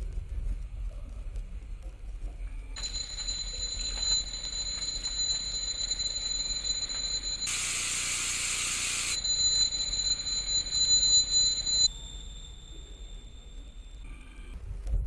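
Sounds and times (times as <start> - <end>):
eerie high-pitched drone: 2.8 - 14.1.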